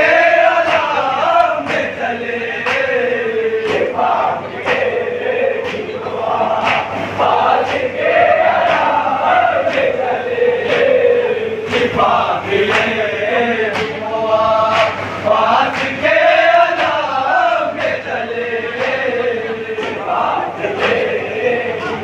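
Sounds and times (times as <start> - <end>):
men chanting a lament: 0.0 - 22.0
hand slaps: 6.6 - 7.0, 13.7 - 14.0, 14.7 - 15.0.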